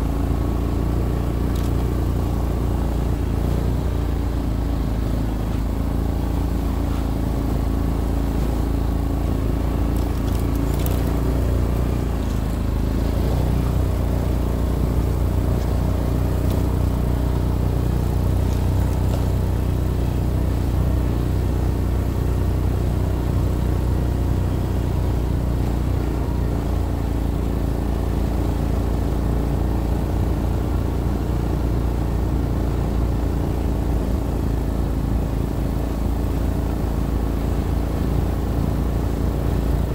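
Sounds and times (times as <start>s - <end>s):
off-road vehicle engine running: 0.0s - 39.9s.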